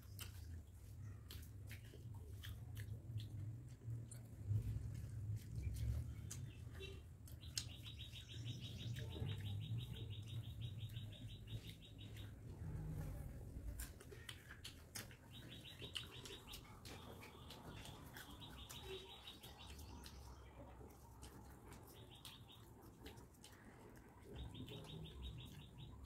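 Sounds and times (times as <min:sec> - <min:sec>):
bird chirping: 0:05.4 - 0:26.0.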